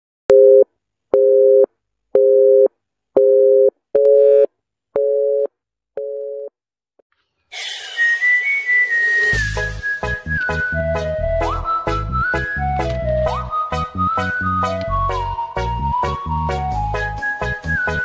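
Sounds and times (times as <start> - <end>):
telephone busy signal beeps: 1.2 - 6.5
music with whistled melody: 7.6 - 18.0.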